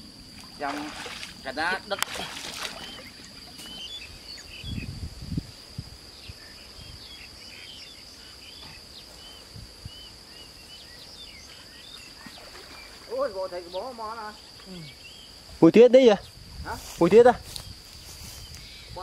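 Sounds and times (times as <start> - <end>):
high-pitched insect drone: 0.0 - 19.0
bird chirps: 2.7 - 4.9.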